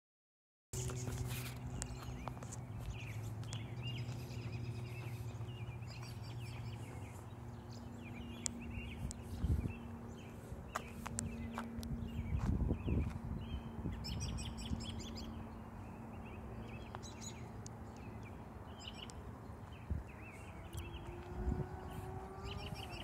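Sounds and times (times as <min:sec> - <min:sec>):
footsteps on concrete: 0:00.8 - 0:13.3
birds chirping and calling: 0:00.8 - 0:23.0
steady low hum: 0:00.8 - 0:23.0.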